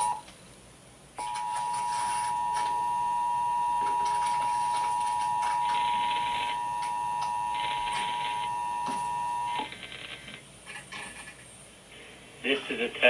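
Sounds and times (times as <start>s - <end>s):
buzzy pulsing beep: 1.2s - 9.7s
two-tone alert signal from radio: 1.2s - 9.7s.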